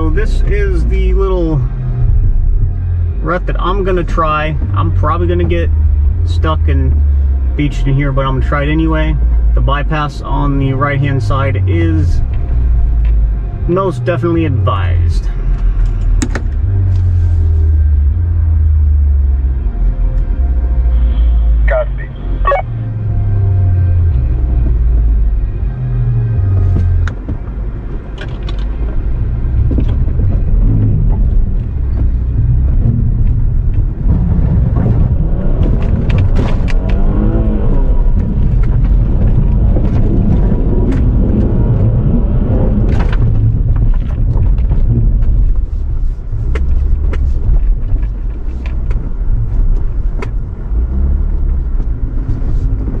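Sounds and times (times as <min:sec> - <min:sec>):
engine low rumble under load: 0:00.0 - 0:53.0
knocks and clicks from vehicle: 0:15.5 - 0:16.8, 0:24.1 - 0:25.5, 0:26.5 - 0:42.0, 0:42.7 - 0:53.0.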